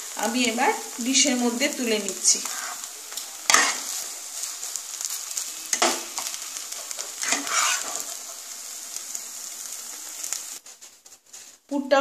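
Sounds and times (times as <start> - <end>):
hot oil sizzling: 0.0 - 12.0
spatula scraping a pan: 2.4 - 8.6.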